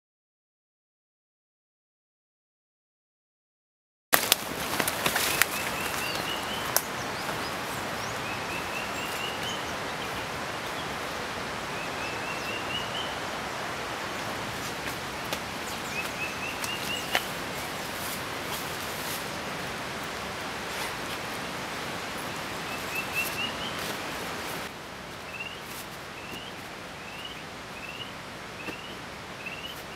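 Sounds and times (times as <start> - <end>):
forest hiss: 4.2 - 29.9
bird song rising notes: 11.6 - 14.4.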